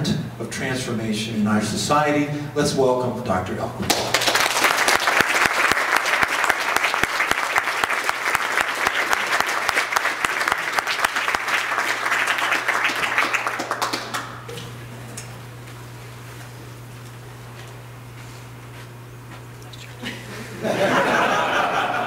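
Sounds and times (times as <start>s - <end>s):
audience applauding: 3.9s - 14.5s.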